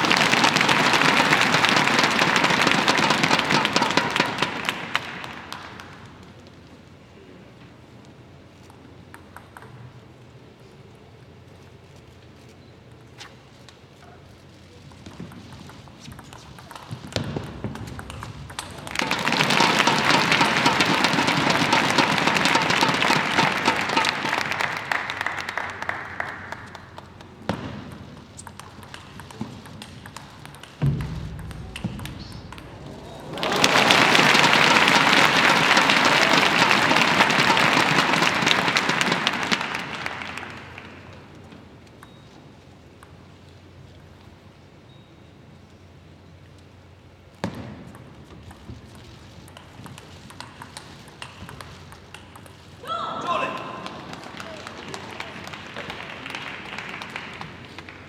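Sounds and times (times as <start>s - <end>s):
spectators applauding: 0.0s - 6.4s, 18.5s - 27.5s, 30.0s - 41.5s, 52.8s - 58.0s.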